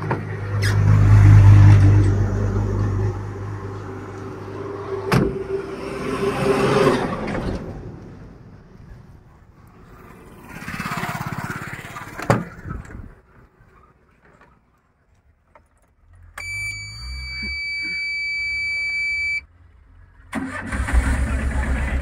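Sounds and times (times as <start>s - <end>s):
engine noise: 0.0s - 14.5s, 15.8s - 22.0s
high-pitched electronic beep: 16.4s - 19.4s.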